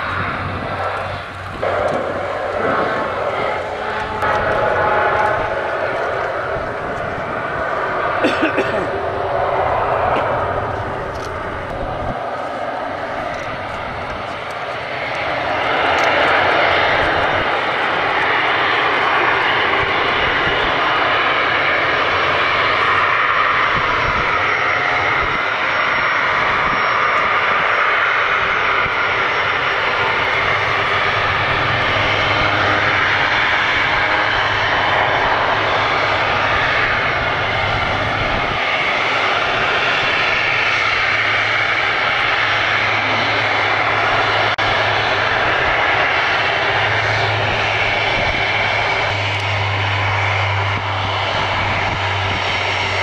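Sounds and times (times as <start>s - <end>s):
low hum: 0.0s - 21.2s
jet engines whining: 0.0s - 53.0s.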